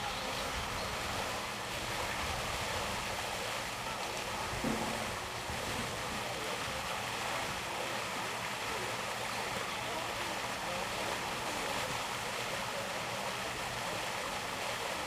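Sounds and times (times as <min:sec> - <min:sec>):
short bump: 0:04.6 - 0:05.3.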